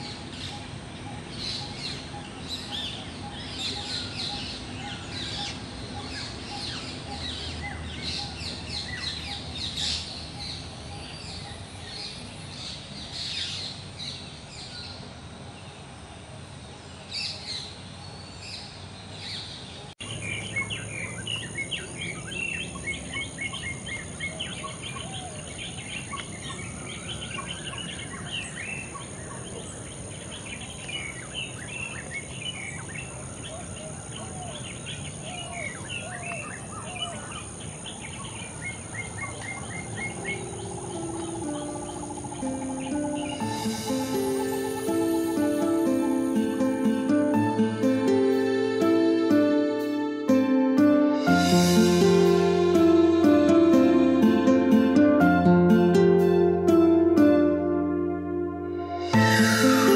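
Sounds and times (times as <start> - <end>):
birds chirping: 0.0 - 15.1, 17.0 - 59.9
high-pitched hiss: 40.3 - 59.9.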